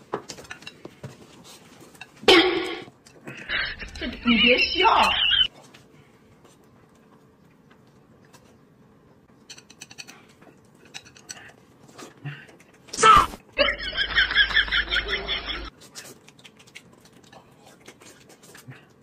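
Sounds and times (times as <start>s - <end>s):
chewing: 6.4s - 8.9s, 9.7s - 12.9s, 15.7s - 19.0s.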